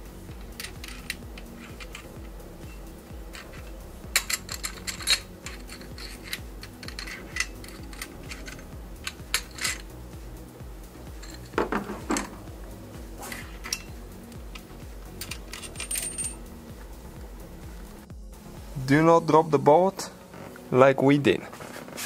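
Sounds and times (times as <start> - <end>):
metal bolts clinking: 0.6 - 2.1, 2.7 - 9.9, 11.2 - 12.4, 13.2 - 14.0, 15.2 - 16.4
dull clatter of knocks: 11.5 - 12.4.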